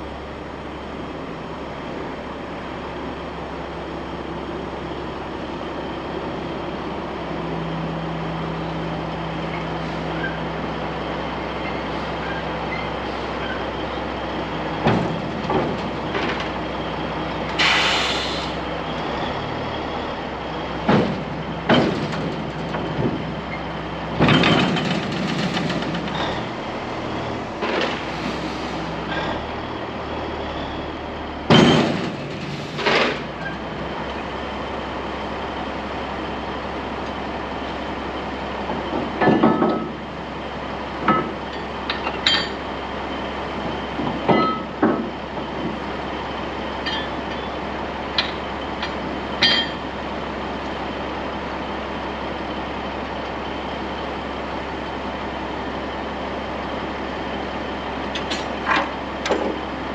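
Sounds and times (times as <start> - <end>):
metallic clanks and knocks: 24.2 - 26.4, 31.5 - 33.6, 38.7 - 40.0, 44.0 - 45.8, 46.8 - 47.4, 48.2 - 49.8.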